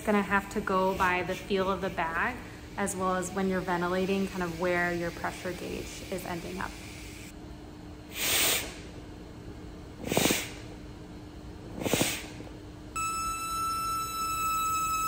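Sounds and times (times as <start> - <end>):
puffs of air from breathing bag: 8.1 - 8.8, 10.0 - 10.7, 11.8 - 12.4.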